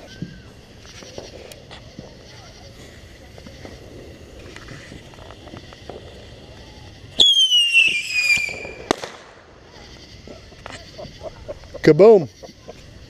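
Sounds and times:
firework bang: 0:00.0 - 0:10.8
firework whistle falling: 0:05.6 - 0:09.4.

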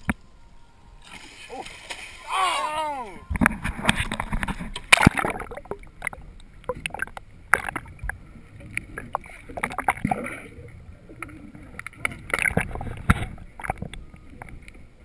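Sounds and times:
water splashing: 0:00.0 - 0:14.6
muffled underwater rushing: 0:00.0 - 0:15.0
sharp clicks underwater: 0:03.3 - 0:10.4, 0:11.2 - 0:14.8.

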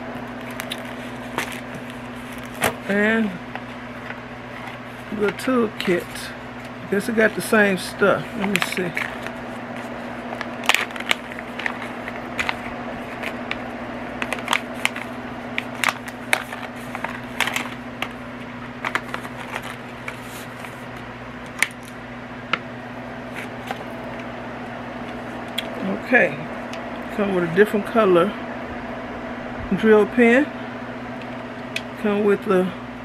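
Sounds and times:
steady low hum: 0:00.0 - 0:33.0
packaging crinkles: 0:00.3 - 0:02.9, 0:08.2 - 0:24.3.

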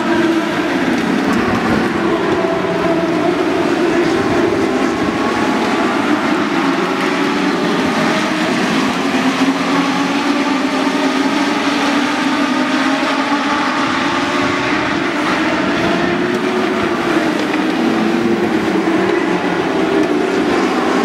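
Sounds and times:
race car engines roaring: 0:00.0 - 0:21.0.

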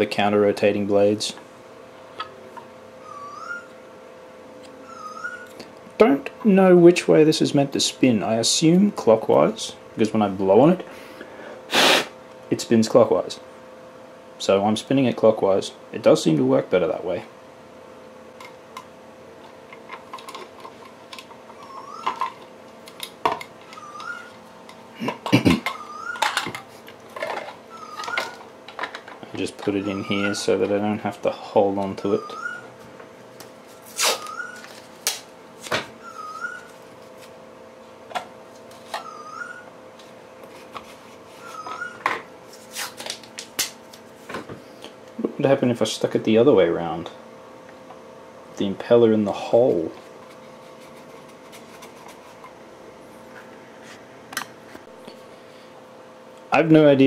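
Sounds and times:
faint steady hum: 0:00.0 - 0:57.0
masking tape ripping: 0:33.8 - 0:35.3.

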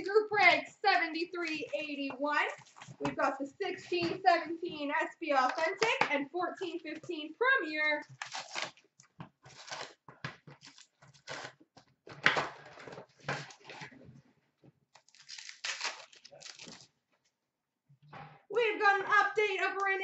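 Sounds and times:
cardboard packaging tearing and crinkling: 0:08.1 - 0:08.9, 0:09.5 - 0:11.6, 0:15.0 - 0:16.9.

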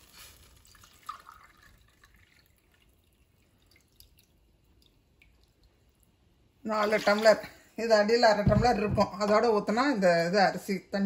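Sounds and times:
water trickling and dripping: 0:00.4 - 0:07.4.

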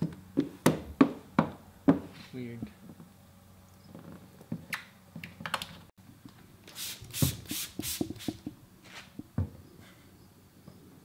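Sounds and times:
spray bottle squirts hissing: 0:06.7 - 0:08.5.

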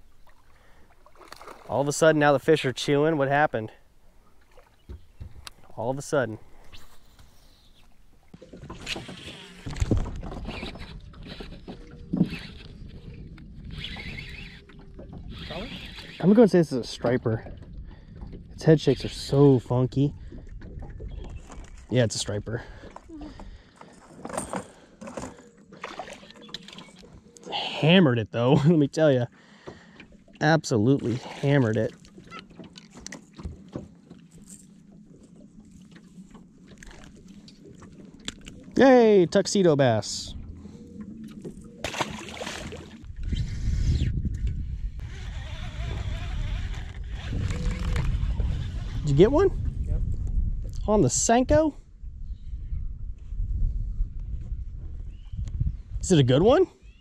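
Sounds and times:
knocks and thumps on boat: 0:08.3 - 0:12.6, 0:31.4 - 0:35.2
fishing tackle clicks and taps: 0:38.2 - 0:38.6.

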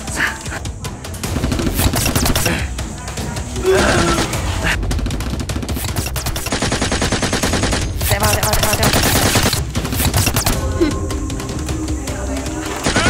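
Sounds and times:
rapid automatic gunfire: 0:01.2 - 0:02.7, 0:04.8 - 0:10.6, 0:12.8 - 0:13.0.

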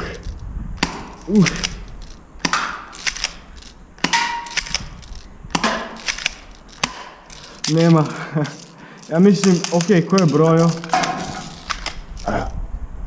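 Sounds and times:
light clicks: 0:00.2 - 0:12.3
airsoft pistol snaps: 0:00.8 - 0:07.6, 0:09.6 - 0:12.2.

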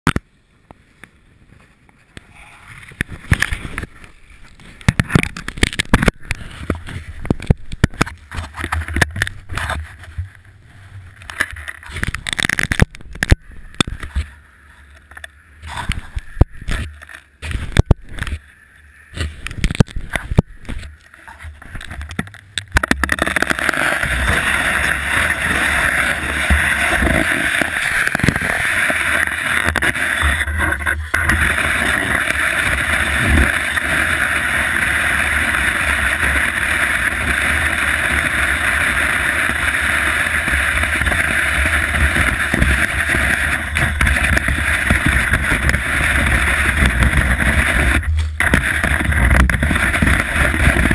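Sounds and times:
skis sliding over snow: 0:00.8 - 0:50.9
wind rumble on microphone: 0:15.1 - 0:18.4, 0:19.1 - 0:50.9.

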